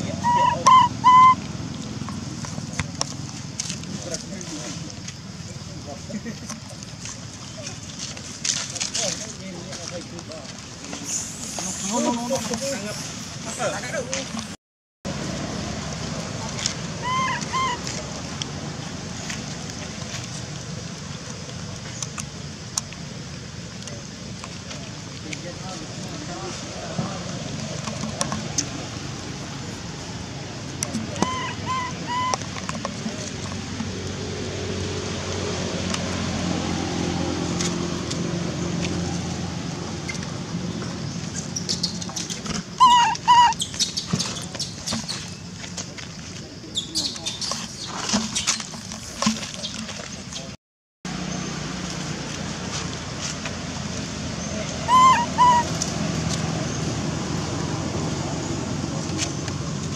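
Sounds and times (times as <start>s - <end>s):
baby monkey coo calls: 0.0s - 1.4s, 17.0s - 17.9s, 31.2s - 32.4s, 42.8s - 44.0s, 54.8s - 55.9s.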